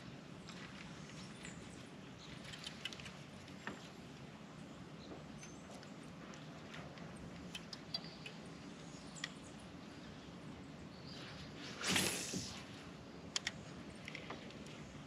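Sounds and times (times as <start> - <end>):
light clicks: 5.4 - 8.4, 9.1 - 9.4, 13.3 - 14.8.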